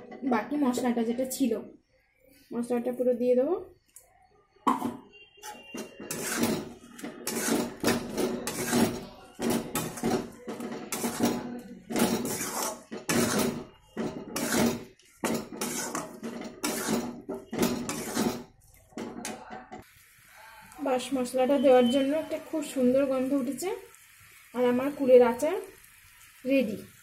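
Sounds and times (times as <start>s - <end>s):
metal spatula scraping a wok: 5.3s - 19.4s.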